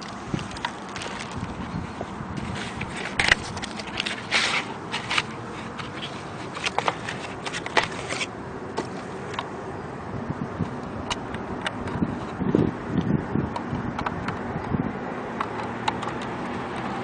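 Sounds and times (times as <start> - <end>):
parts scraping and clicking on grass: 0.0 - 9.5.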